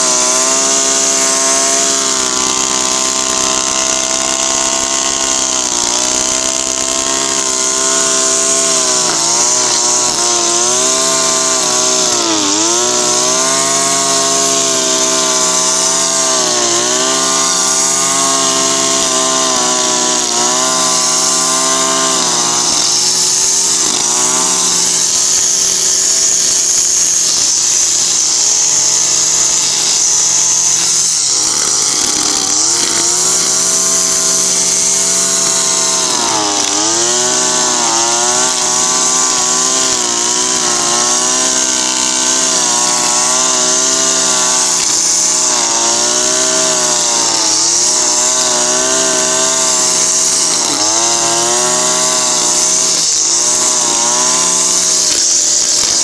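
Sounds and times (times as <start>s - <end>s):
brushcutter cutting grass: 0.0s - 56.0s.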